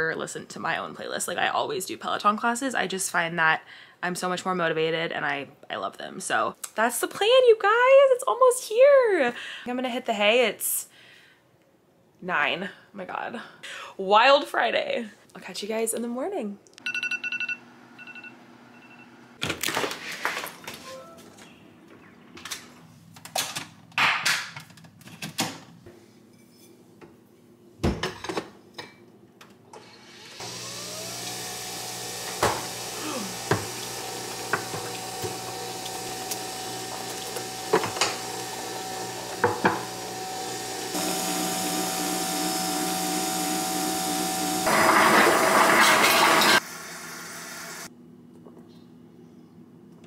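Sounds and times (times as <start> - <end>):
coffee maker spluttering hiss: 30.2 - 47.9
coffee maker pump humming: 30.4 - 47.9.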